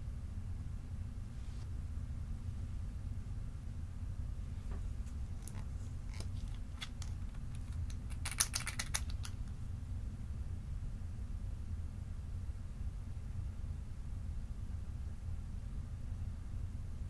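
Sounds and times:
bottle cap unscrewing clicks: 5.4s - 9.5s.

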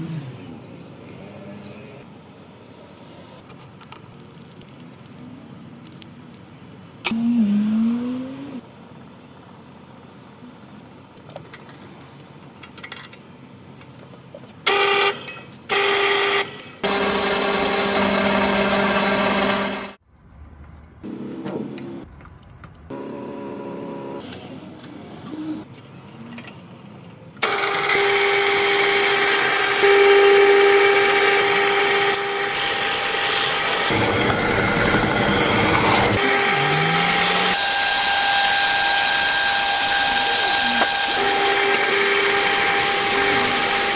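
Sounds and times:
drill press motor humming: 27.4s - 43.9s.

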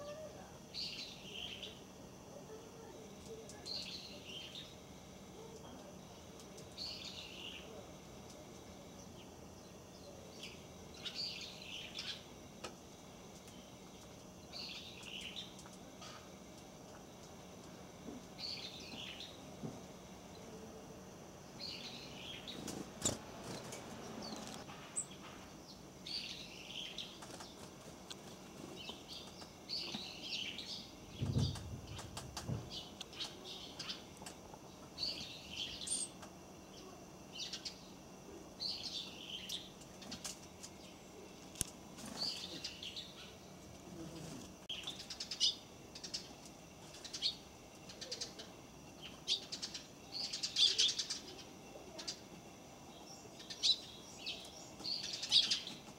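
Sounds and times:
small birds chirping: 0.0s - 55.9s.

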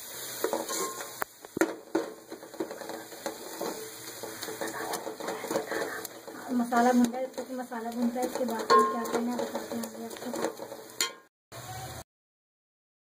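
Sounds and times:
light sizzle: 0.0s - 12.0s
metal spoon scraping pot: 0.4s - 1.2s, 1.9s - 11.3s
spoon knocking against pot: 7.3s - 11.3s.

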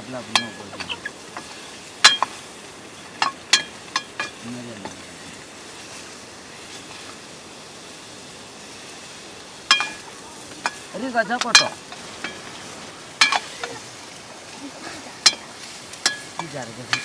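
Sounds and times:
meat sizzling in a wok: 0.0s - 17.0s
metal ladle striking and scraping pan: 0.2s - 2.4s, 3.1s - 5.0s, 9.7s - 13.8s, 15.2s - 17.0s.

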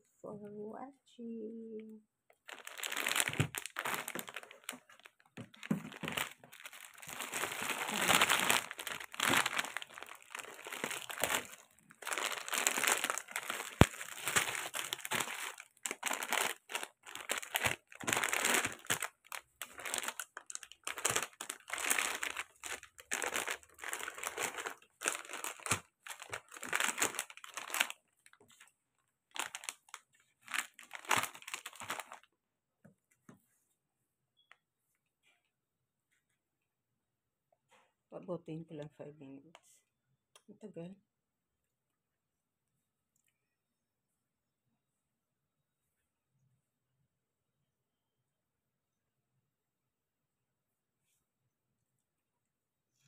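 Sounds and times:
plastic wrappers crinkling: 2.4s - 32.3s.

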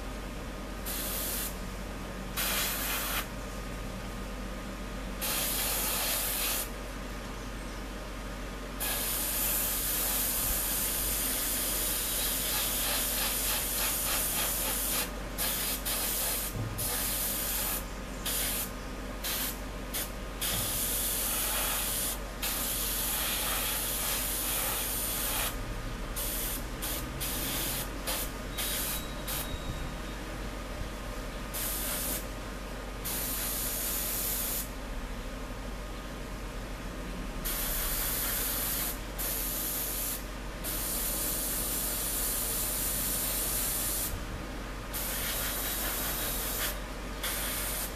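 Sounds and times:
steady low hum: 0.0s - 47.9s
airbrush spraying hiss: 0.8s - 1.6s, 2.4s - 3.3s, 5.2s - 6.7s, 8.8s - 25.6s, 26.2s - 29.4s, 31.5s - 32.3s, 33.0s - 34.7s, 37.4s - 44.1s, 44.9s - 47.9s.

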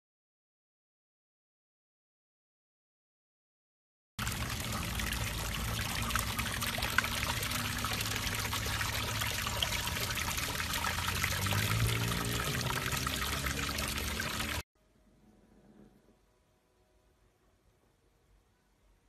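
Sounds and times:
water spraying and splashing: 4.2s - 14.6s
low hum: 14.8s - 19.0s.

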